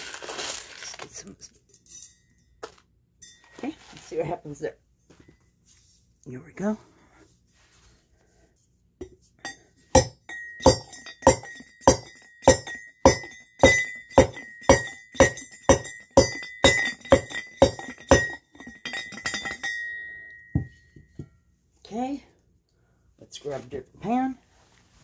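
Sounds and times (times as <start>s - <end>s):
heavy pestle clanking on rock: 10.0s - 19.9s.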